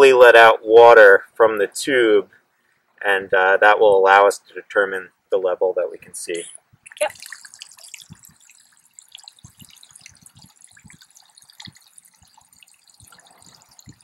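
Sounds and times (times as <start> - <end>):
water dripping into creek: 6.8 - 14.0.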